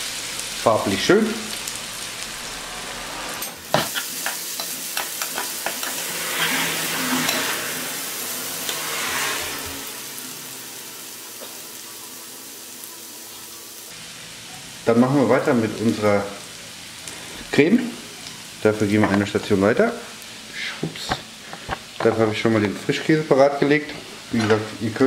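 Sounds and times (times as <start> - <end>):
onions sizzling in a frying pan: 0.0 - 25.0
wooden spoon scraping a pan: 3.3 - 7.9.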